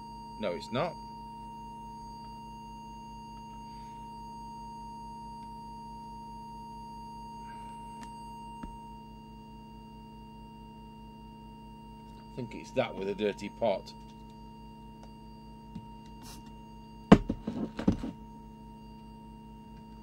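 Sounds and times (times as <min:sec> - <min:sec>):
low buzzing mains hum: 0:00.0 - 0:20.0
steady test tone: 0:00.0 - 0:20.0.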